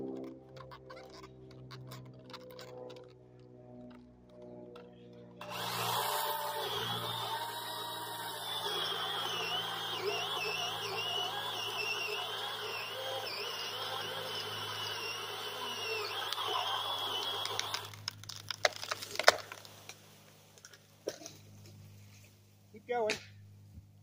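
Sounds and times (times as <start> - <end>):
chainsaw running: 5.4 - 19.6
wood cracking and snapping: 17.0 - 20.0
tree falling crack: 17.6 - 20.0.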